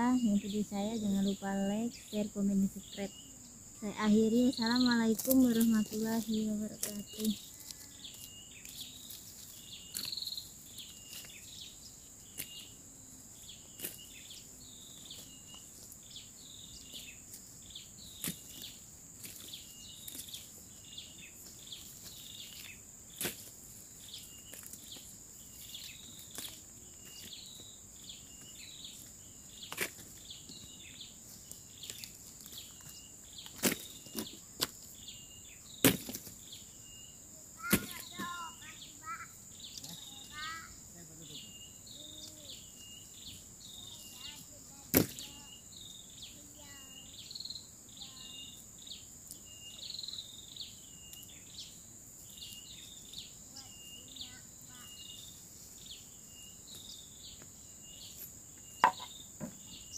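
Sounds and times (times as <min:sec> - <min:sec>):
high insect drone: 0:00.0 - 0:59.9
dry twigs snapping and rustling: 0:05.1 - 0:10.3.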